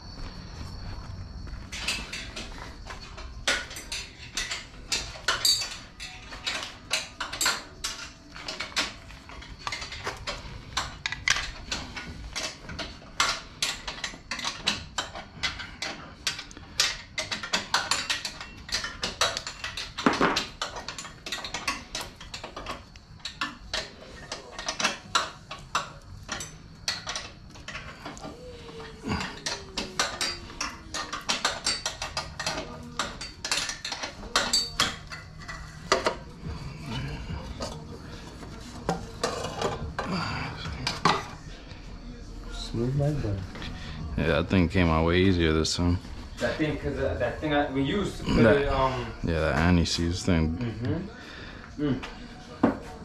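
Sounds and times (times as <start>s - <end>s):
metal tools clinking: 1.4s - 41.6s.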